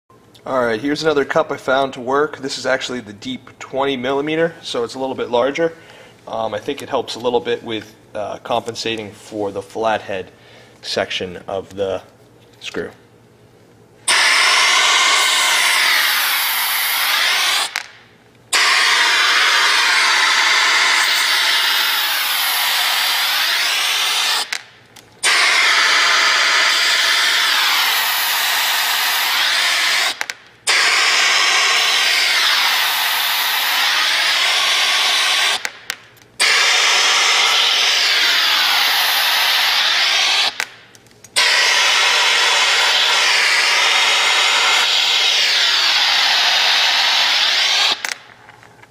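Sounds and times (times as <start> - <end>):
vacuum ejector hissing: 14.1 - 17.9, 18.5 - 24.6, 25.2 - 35.7, 36.4 - 40.7, 41.4 - 48.2.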